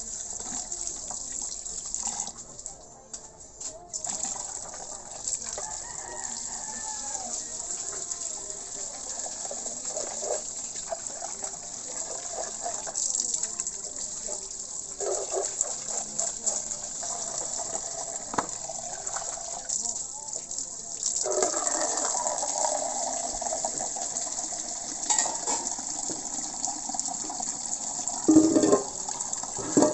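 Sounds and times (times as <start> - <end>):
water running from a tap: 0.0 - 2.8, 4.0 - 29.9
rooster crowing: 5.6 - 7.7.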